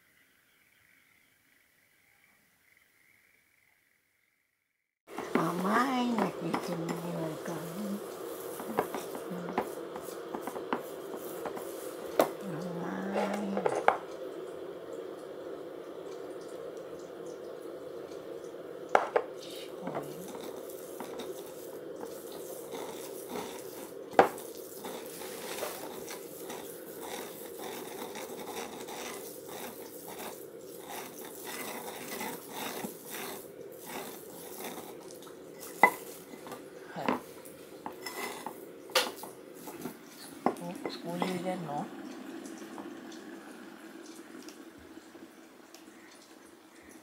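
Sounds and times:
pestle grinding in mortar: 22.6 - 35.0.

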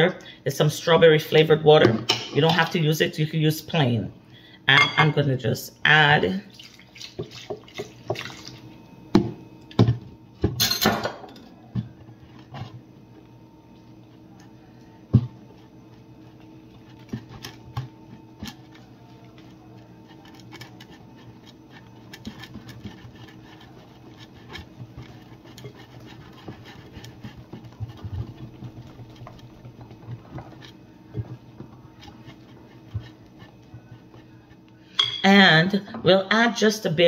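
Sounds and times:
whisk scraping a glass bowl: 14.4 - 35.2.

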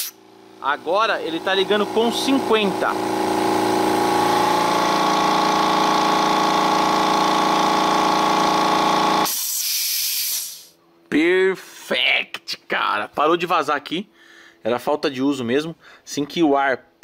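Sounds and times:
air compressor running: 0.0 - 10.7
hiss of released air: 9.2 - 10.8.

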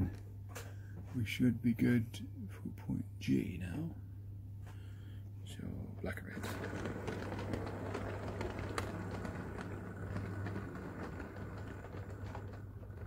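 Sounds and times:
model train running: 6.2 - 13.0
wheels clicking over rail joints: 6.3 - 13.0.

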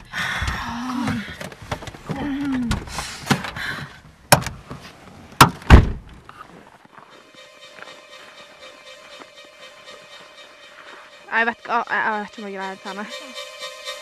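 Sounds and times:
car door thunks: 5.4 - 6.2.

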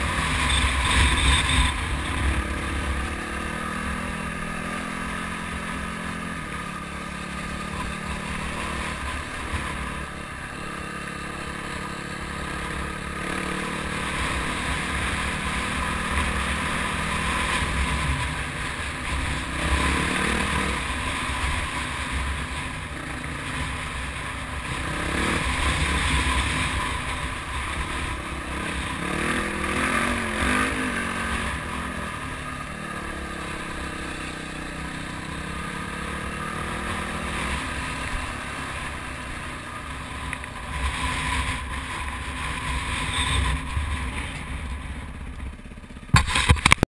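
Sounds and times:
wind and trail rushing noise: 0.0 - 46.8
off-road vehicle engine revving: 11.7 - 38.3.

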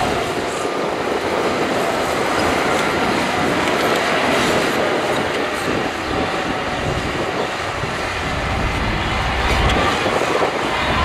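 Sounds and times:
bulldozer diesel engine under load: 0.0 - 11.0
heavy low rumble: 6.8 - 11.0.

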